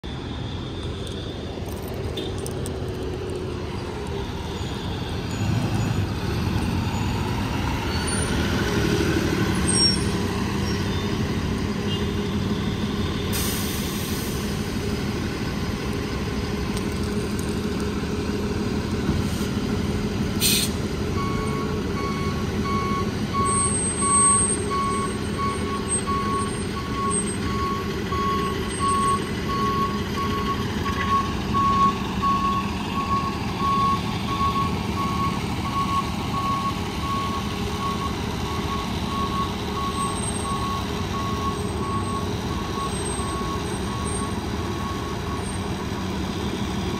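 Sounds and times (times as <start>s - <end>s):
ambulance engine running: 0.0s - 46.9s
reversing alarm beeping: 4.2s - 8.3s, 21.1s - 45.9s.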